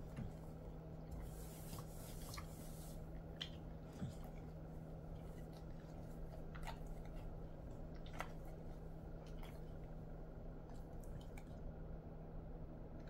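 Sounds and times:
dog mouth smacking and licking: 0.0 - 10.0, 10.6 - 11.7
steady low hum: 0.0 - 13.0.

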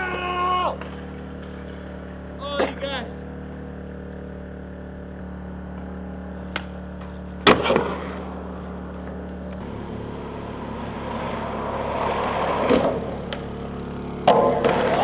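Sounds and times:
skateboard impact on concrete: 5.7 - 8.4, 11.1 - 13.6, 14.2 - 15.0
skateboard rattling roll: 10.6 - 13.6, 14.2 - 15.0.

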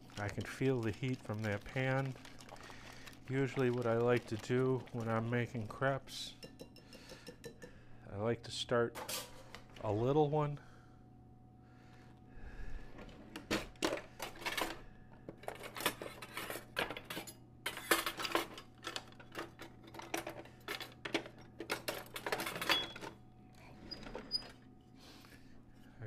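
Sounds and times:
metal utensils clattering in drawer: 15.4 - 23.1.

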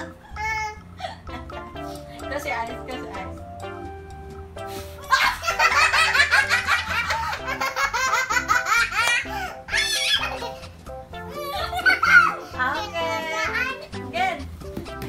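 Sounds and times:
girl laughing: 0.0 - 1.7, 5.0 - 12.5
woman laughing: 1.0 - 1.7, 5.0 - 10.6, 11.3 - 12.4.

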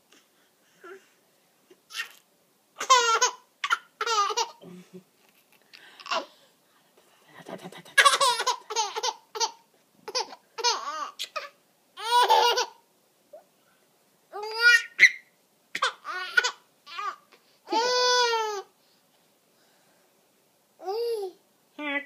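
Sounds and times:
baby laughing and squealing: 2.8 - 4.6, 8.0 - 12.8, 14.4 - 18.7.

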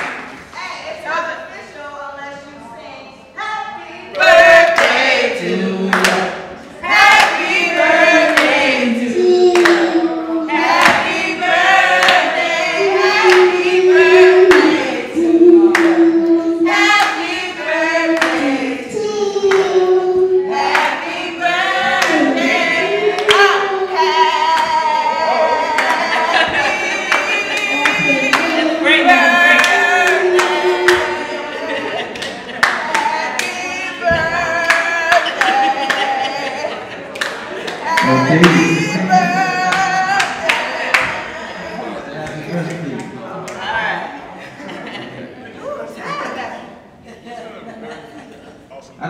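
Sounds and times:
woman singing: 3.4 - 32.0, 32.6 - 36.8, 37.8 - 41.6.

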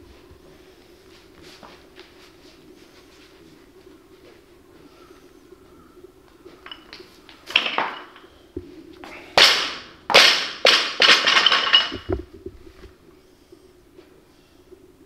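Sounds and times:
plates rattling and bouncing: 6.5 - 8.4, 9.4 - 12.4
barbell crashing onto platform: 9.4 - 12.1.

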